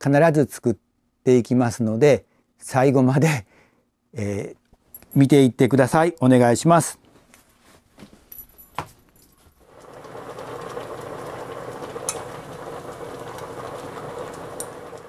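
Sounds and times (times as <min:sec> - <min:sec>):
water boiling bubbling: 0:09.6 - 0:15.0.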